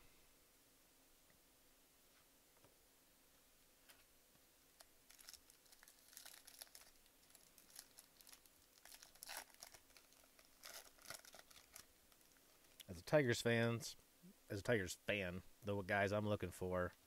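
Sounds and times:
foil wrapper crinkling and tearing: 4.8 - 12.8.

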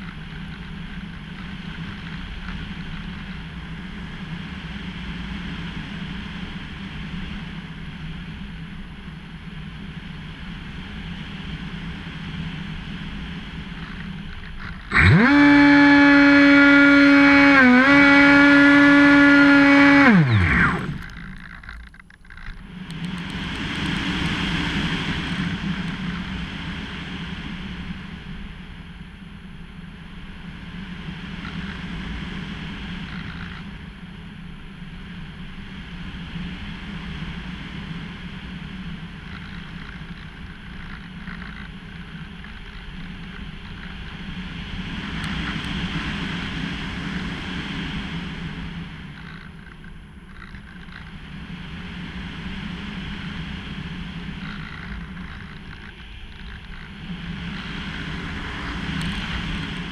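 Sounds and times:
electric motor and propeller whine: 0.0 - 59.9
airflow rushing: 14.9 - 21.3.

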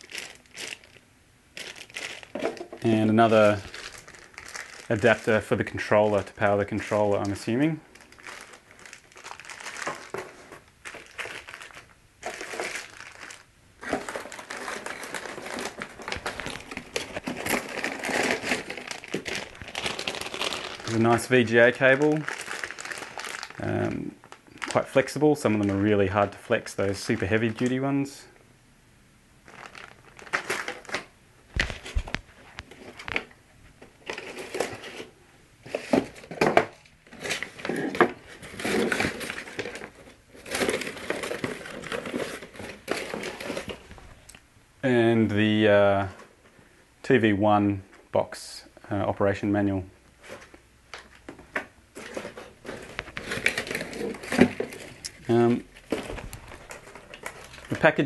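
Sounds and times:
plastic bags crinkling: 0.0 - 27.8, 29.4 - 35.1, 35.7 - 44.4, 50.2 - 58.0
knocks and thumps of cases: 2.2 - 2.8, 35.7 - 36.8, 51.2 - 55.0, 55.8 - 57.5
cardboard rustling and scraping: 9.4 - 11.3, 13.8 - 21.4, 31.6 - 44.2, 50.2 - 50.5, 51.3 - 57.8.

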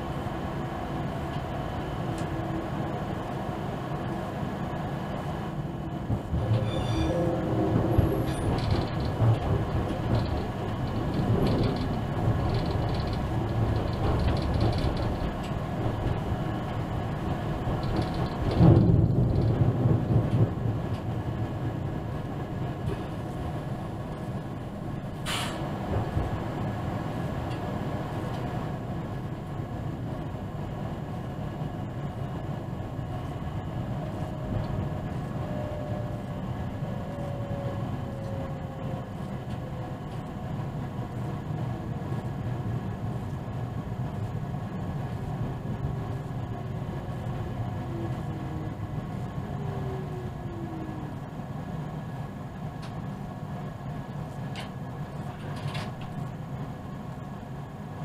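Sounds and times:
train low rumble: 0.0 - 58.0
short hiss: 25.2 - 25.6.

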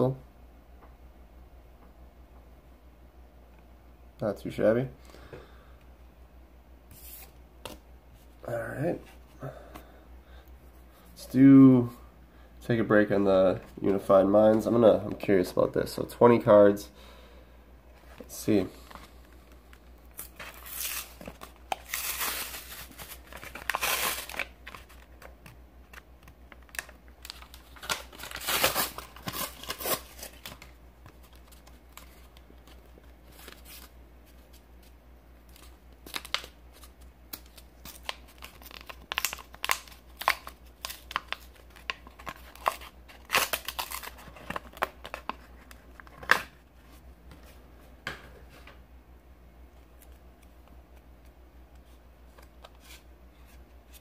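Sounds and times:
plastic packaging tearing and crinkling: 20.1 - 25.3, 25.9 - 32.3, 36.0 - 46.5.

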